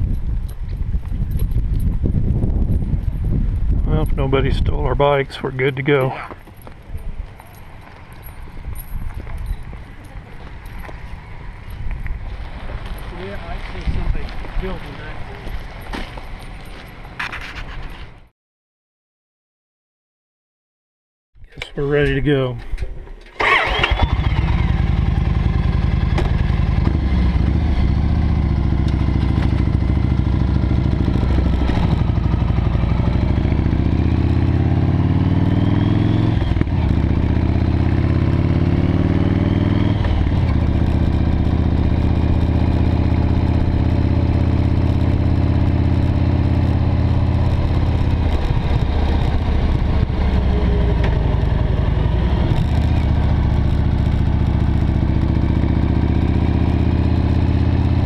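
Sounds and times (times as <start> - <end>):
motorcycle engine accelerating: 0.0 - 6.3, 23.4 - 58.0.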